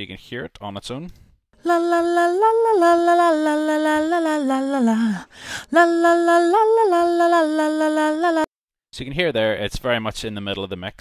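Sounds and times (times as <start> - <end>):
person singing long notes: 1.6 - 8.5
short breath: 5.2 - 5.7.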